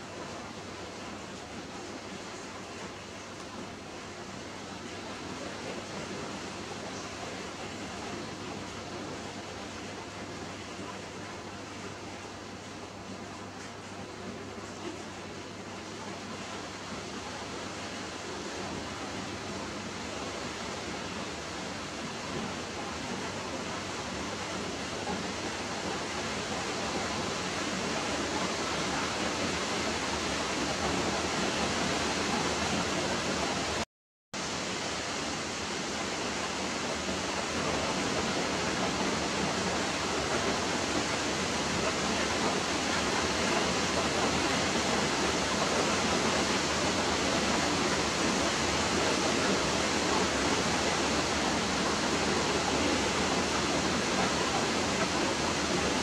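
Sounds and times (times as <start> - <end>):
steady rushing hiss: 34.4 - 56.0.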